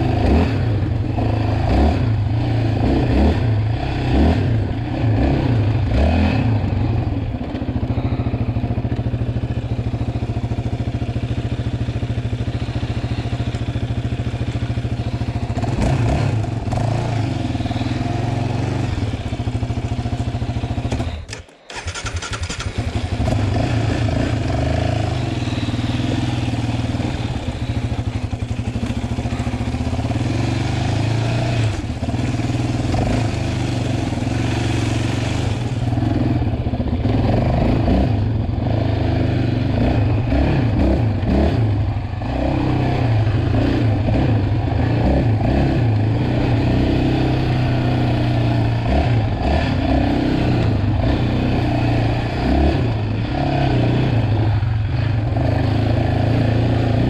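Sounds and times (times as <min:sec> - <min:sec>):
quad engine revving: 0:00.0 - 0:57.0.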